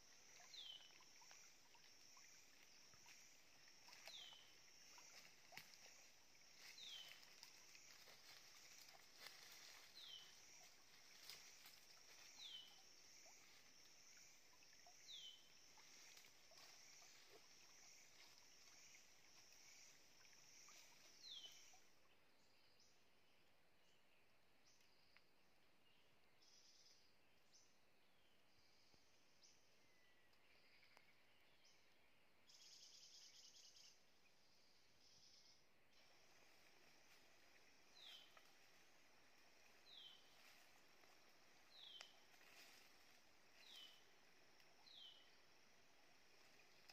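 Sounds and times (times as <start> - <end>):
high insect drone: 0.0 - 21.9, 35.1 - 46.9.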